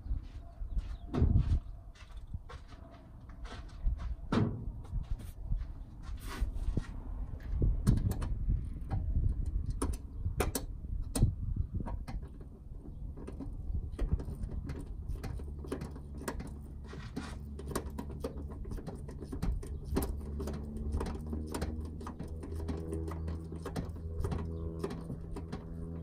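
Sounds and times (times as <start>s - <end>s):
low steady hum: 6.7s - 26.0s.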